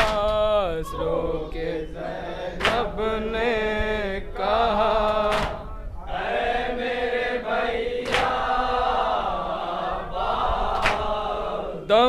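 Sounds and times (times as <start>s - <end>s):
men chanting in unison: 0.0s - 12.0s
chest-beating slaps: 2.6s - 2.9s, 5.2s - 5.7s, 8.0s - 8.4s, 10.7s - 11.2s.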